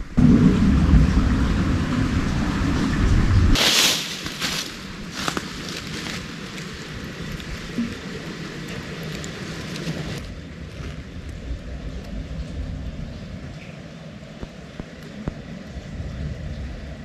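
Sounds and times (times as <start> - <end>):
footsteps crunching dry leaves: 3.6 - 8.1.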